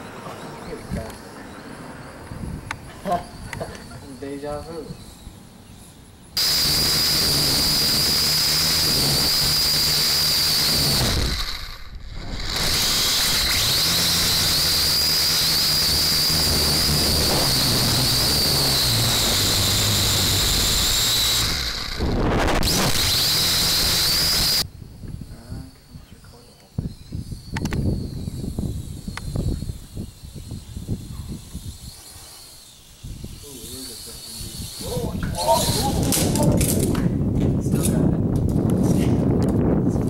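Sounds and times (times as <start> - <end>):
drone propellers whining: 0.0 - 25.3, 26.8 - 36.8.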